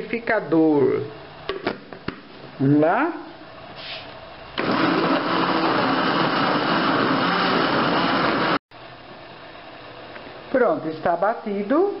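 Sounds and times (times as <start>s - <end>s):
blender motor running: 4.6s - 8.6s.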